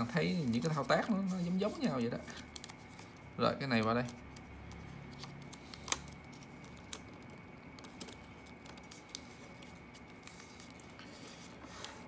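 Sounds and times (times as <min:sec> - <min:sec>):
paper rustling: 0:00.0 - 0:12.0.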